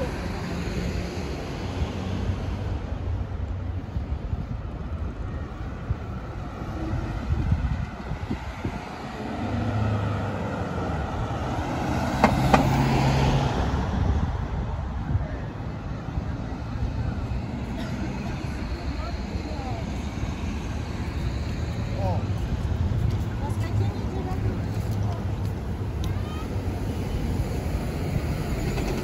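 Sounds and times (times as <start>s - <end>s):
road traffic: 0.0s - 29.0s
vehicle passing: 6.1s - 29.0s.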